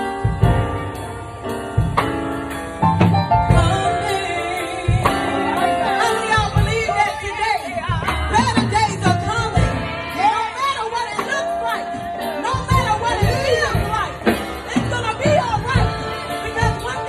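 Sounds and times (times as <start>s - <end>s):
band playing sustained chords: 0.0s - 17.0s
woman singing: 3.4s - 17.0s.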